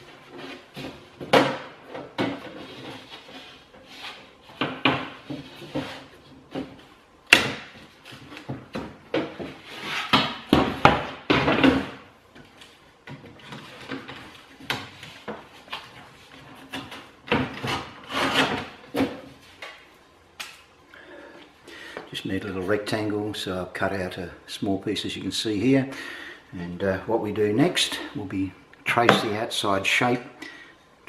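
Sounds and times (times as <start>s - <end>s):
knife scraping through plasterboard: 9.6s - 10.2s, 16.9s - 18.7s.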